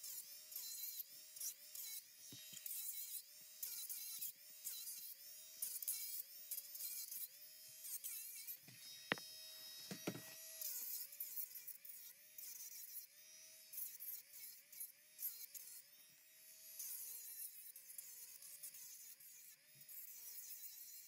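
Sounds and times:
small electric motor wavering: 0.0s - 21.0s.

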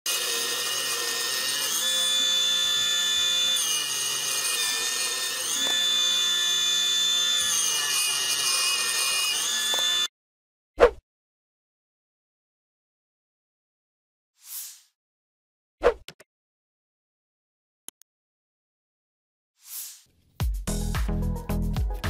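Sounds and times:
saw blade cutting wood: 0.1s - 10.1s
table saw whining: 0.1s - 10.1s.

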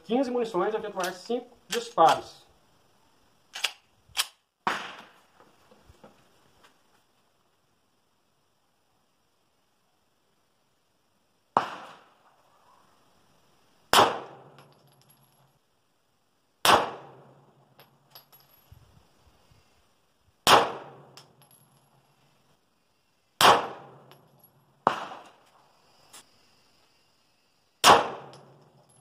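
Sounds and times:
pistol shots: 4.6s - 5.1s, 11.6s - 12.1s, 13.9s - 14.6s, 16.6s - 17.3s, 20.4s - 21.2s, 23.4s - 24.1s, 24.8s - 25.4s, 27.8s - 28.6s.

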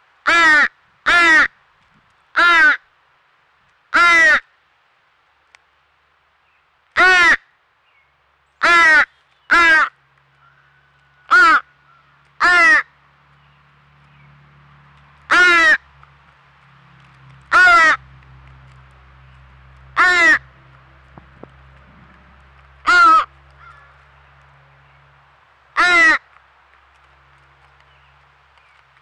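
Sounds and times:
crow fledgling cawing: 0.2s - 1.5s, 2.4s - 2.9s, 3.9s - 4.5s, 7.0s - 7.5s, 8.6s - 13.0s, 15.3s - 15.8s, 17.5s - 18.0s, 20.0s - 20.5s, 22.8s - 24.1s, 25.7s - 26.3s.

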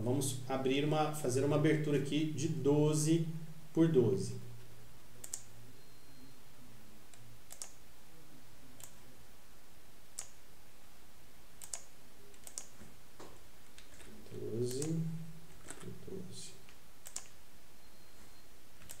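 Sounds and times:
mouse and keyboard clicks: 5.2s - 5.5s, 7.1s - 7.8s, 10.2s - 10.4s, 11.6s - 12.9s, 13.6s - 16.0s, 16.6s - 17.4s, 18.8s - 19.0s.

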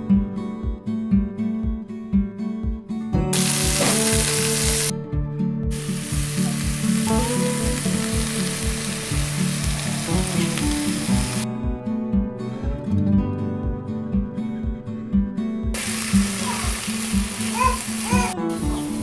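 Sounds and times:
acoustic guitar music: 0.0s - 19.0s
greens sizzling in hot oil: 3.4s - 4.9s, 5.7s - 11.4s, 15.8s - 19.0s.

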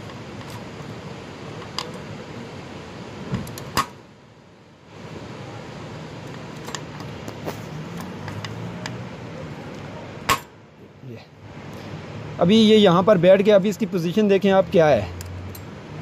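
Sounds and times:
steady background hiss: 0.0s - 16.0s
metallic clicks and knocks: 6.3s - 9.0s.

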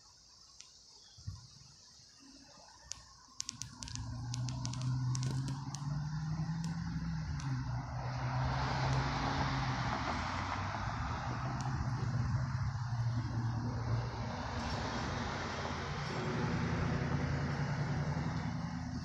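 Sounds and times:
sharp ticks: 2.8s - 12.9s
large engine droning: 3.7s - 19.0s.

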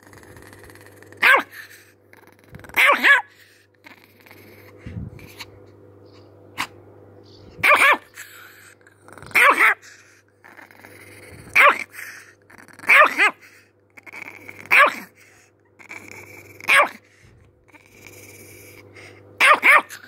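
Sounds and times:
small dog barking high: 1.2s - 1.6s, 2.8s - 3.3s, 7.6s - 8.2s, 9.3s - 9.8s, 11.6s - 11.9s, 12.9s - 13.4s, 14.7s - 15.1s, 16.7s - 17.0s, 19.4s - 20.0s.

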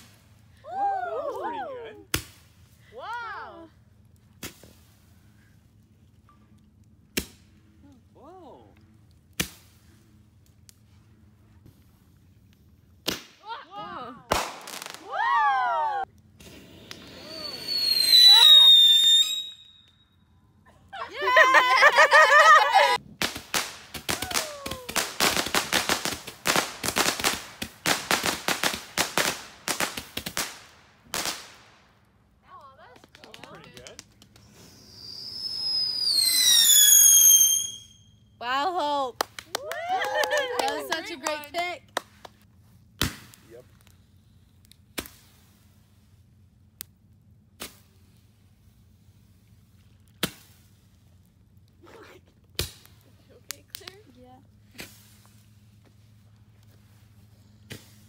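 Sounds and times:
fireworks cracking and popping: 9.2s - 10.8s, 13.0s - 13.6s, 14.2s - 20.0s, 21.3s - 38.1s, 39.2s - 45.8s, 46.8s - 48.4s, 49.5s - 58.0s
fireworks bangs: 14.3s - 15.3s, 16.4s - 19.7s, 21.3s - 31.7s
falling firework whistle: 14.6s - 20.4s, 34.4s - 38.3s
firework hiss: 16.4s - 19.6s, 22.2s - 31.8s, 34.4s - 38.0s, 50.2s - 51.0s, 54.6s - 55.7s, 56.8s - 58.0s.

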